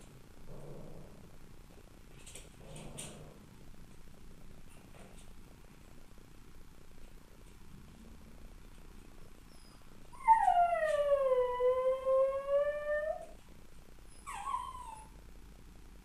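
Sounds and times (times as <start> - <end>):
dog whining: 9.5 - 13.4, 14.1 - 15.2
dog howling: 10.2 - 13.4.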